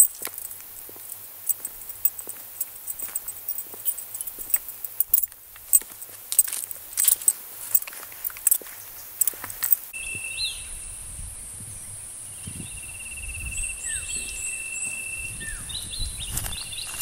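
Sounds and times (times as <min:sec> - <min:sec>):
footstep: 0:00.0 - 0:09.9
insects trilling: 0:00.0 - 0:11.2
low wind rumble: 0:10.4 - 0:17.0.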